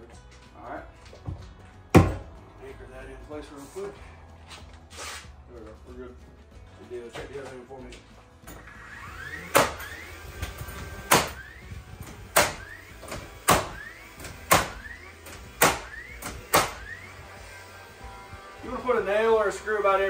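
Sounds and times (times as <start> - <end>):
tool whine: 8.5 - 20.0
nailer shots: 9.3 - 17.1.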